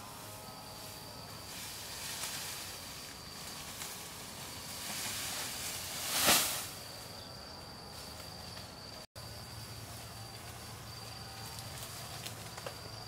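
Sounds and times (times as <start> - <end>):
grass thatch swishing and rustling: 0.0 - 7.2, 9.7 - 12.9
high insect buzz: 0.0 - 13.0.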